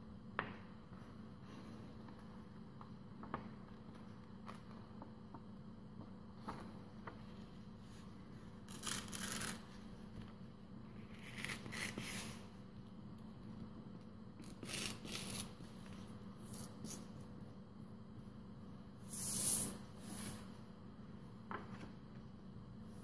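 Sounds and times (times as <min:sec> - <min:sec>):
paper tearing: 0:08.7 - 0:09.7, 0:14.4 - 0:15.5.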